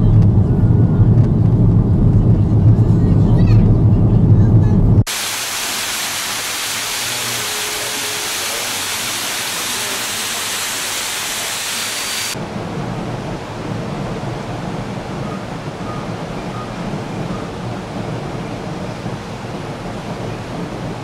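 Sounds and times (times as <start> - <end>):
dull outdoor rumble: 0.0 - 5.8, 12.3 - 21.0
waterfall splashing into pond: 5.1 - 12.4.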